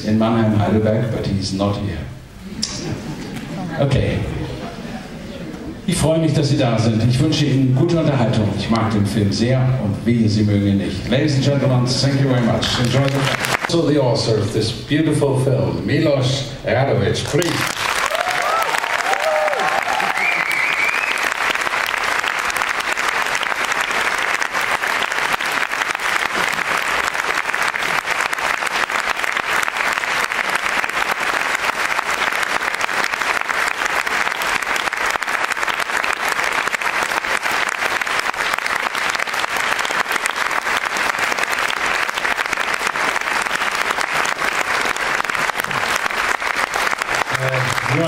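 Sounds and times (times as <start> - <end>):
audience applauding: 12.0 - 13.8, 17.4 - 48.0.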